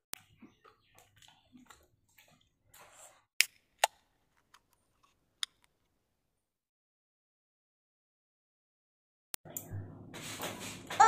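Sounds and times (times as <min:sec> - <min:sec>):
soft eating noises: 0:00.1 - 0:03.3.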